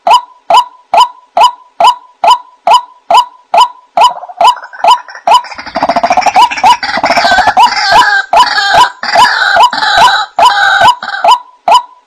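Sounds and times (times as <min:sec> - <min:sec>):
bird harsh rapid chattering: 0:04.2 - 0:09.9.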